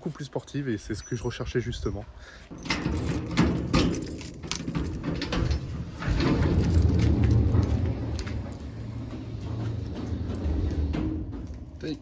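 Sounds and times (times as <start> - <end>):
garage door rumbling open: 2.5 - 12.0.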